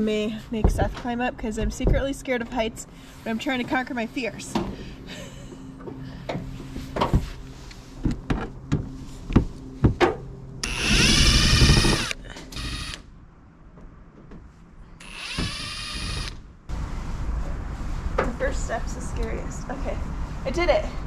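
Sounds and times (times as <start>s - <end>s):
impact driver running: 10.6s - 13.0s, 15.0s - 16.4s.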